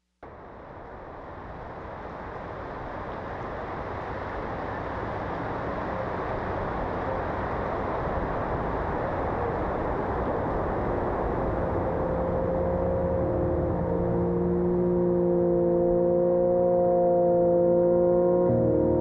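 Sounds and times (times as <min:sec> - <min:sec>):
heavy rain: 0:00.3 - 0:14.0.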